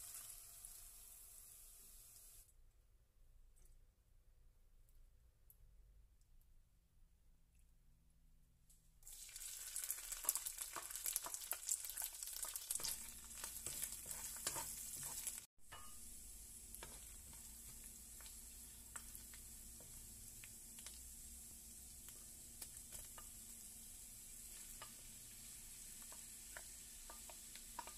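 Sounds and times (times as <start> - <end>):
shrimp sizzling in hot oil: 0.0 - 2.4, 9.1 - 27.9
spatula stirring in wok: 9.9 - 27.9.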